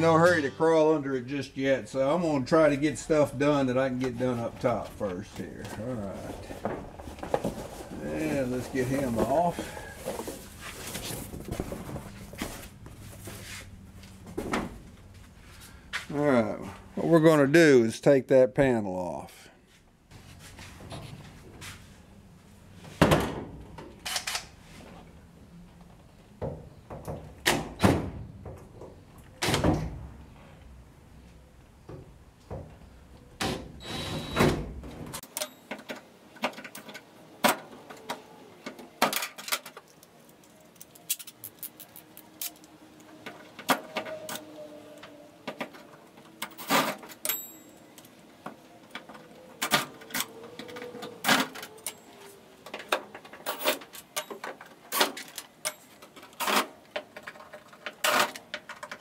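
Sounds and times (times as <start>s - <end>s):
tools and screws knocking and rattling: 35.1s - 44.1s, 45.4s - 59.0s.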